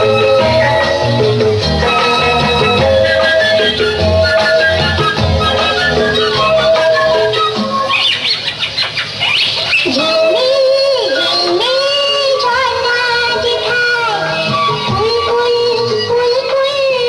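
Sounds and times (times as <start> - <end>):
high instrumental notes: 0.0 - 11.7
high voice singing: 0.0 - 17.0.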